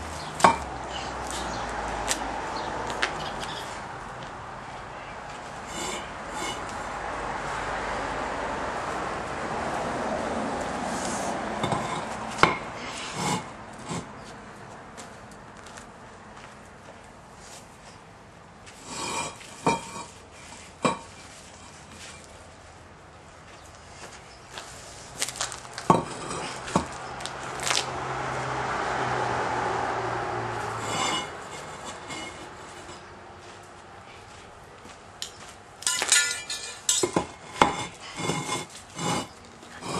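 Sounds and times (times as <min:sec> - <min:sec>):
pavers clacking together: 0:35.2 - 0:38.4.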